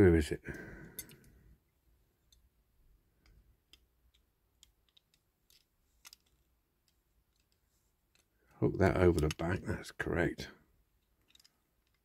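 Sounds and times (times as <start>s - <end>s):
faint clicks of toy car parts: 0.5s - 2.5s, 3.1s - 9.7s, 10.6s - 12.0s.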